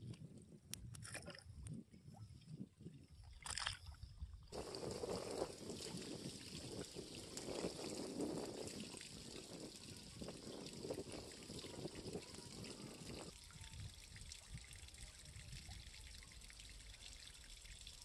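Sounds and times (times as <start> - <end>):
lapping water: 2.4 - 18.0
water sloshing around wading person: 3.1 - 13.2
small water splashes: 3.2 - 18.0.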